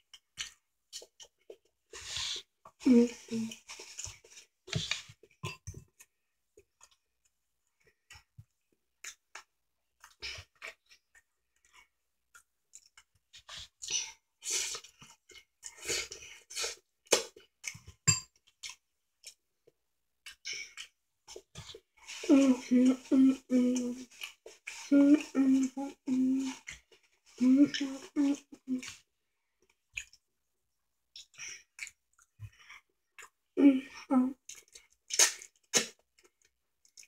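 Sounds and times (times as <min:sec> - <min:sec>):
chewing and lip-smacking: 0:09.0 - 0:22.3, 0:23.7 - 0:24.9, 0:28.4 - 0:30.2, 0:31.1 - 0:33.4, 0:34.4 - 0:37.0.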